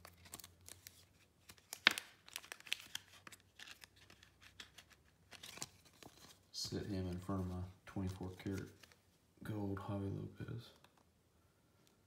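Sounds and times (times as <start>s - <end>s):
plastic card sleeve crinkling: 0.0s - 9.1s.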